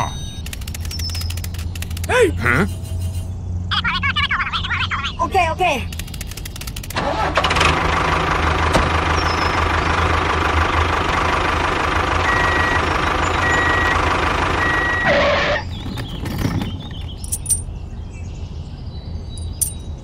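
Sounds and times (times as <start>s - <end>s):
high reversing beeps: 0.0s - 0.5s, 12.2s - 15.6s
tractor engine running: 0.0s - 3.2s, 5.8s - 17.7s
small clicks: 0.4s - 2.2s, 5.9s - 7.0s.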